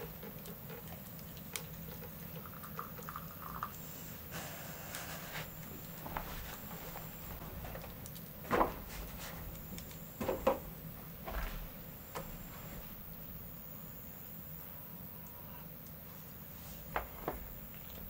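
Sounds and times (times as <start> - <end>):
low steady hum: 0.0 - 18.0
knocks and clatters: 10.2 - 12.5.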